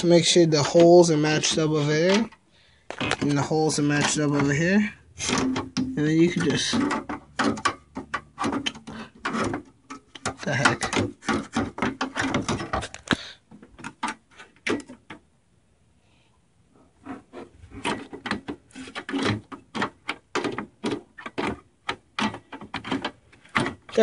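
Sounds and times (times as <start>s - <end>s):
metal clicks and scrapes: 17.0s - 24.0s.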